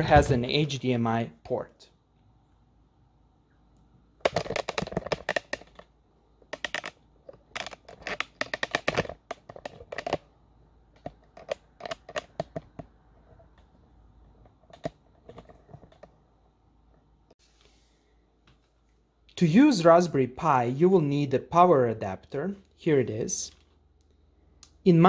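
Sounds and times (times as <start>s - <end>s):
computer gear clicking and rattling: 4.2s - 10.3s, 11.0s - 12.9s.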